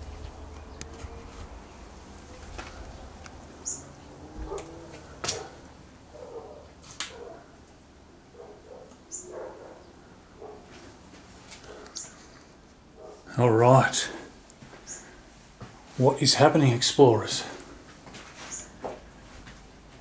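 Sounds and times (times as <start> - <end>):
bird calls: 0.0 - 5.6, 9.0 - 9.9, 11.7 - 12.4, 14.8 - 15.2, 18.4 - 18.8.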